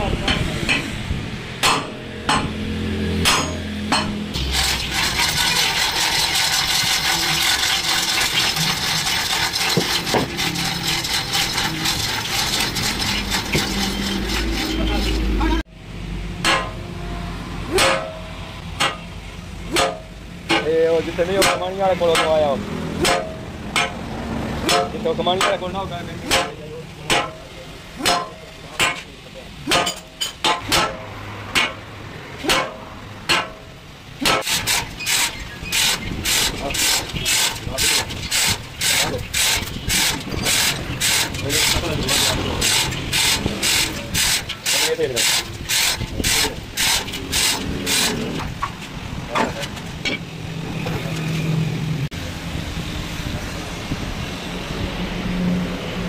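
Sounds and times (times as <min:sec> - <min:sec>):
hammer striking steel: 0:00.2 - 0:01.0, 0:01.6 - 0:04.4, 0:16.4 - 0:16.8, 0:17.7 - 0:19.1, 0:19.7 - 0:20.7, 0:21.4 - 0:22.4, 0:23.0 - 0:24.0, 0:24.6 - 0:29.1, 0:29.7 - 0:48.6.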